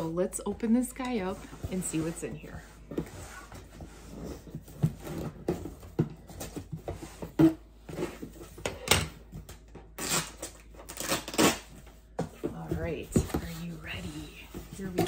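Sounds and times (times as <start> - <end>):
scraping on cardboard: 1.0 - 5.8.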